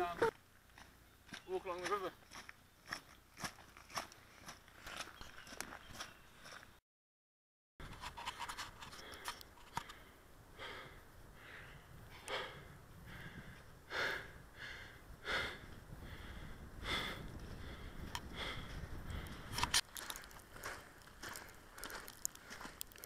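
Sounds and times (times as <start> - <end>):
person breathing hard: 8.8 - 23.0
footsteps crunching on snow: 19.7 - 23.0.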